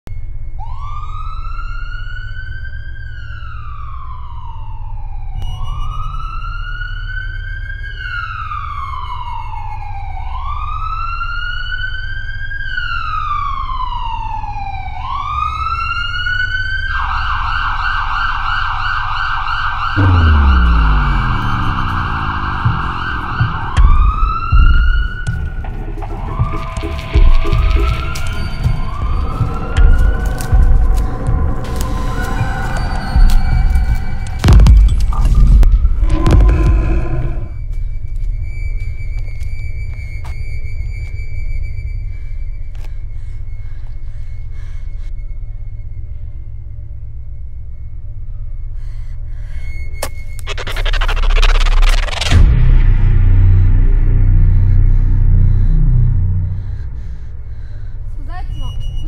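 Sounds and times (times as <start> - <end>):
emergency siren wailing and yelping: 0.6 - 34.5
low hum: 19.9 - 40.8, 41.6 - 59.0
deep falling rumble: 20.0 - 37.6, 50.5 - 59.0.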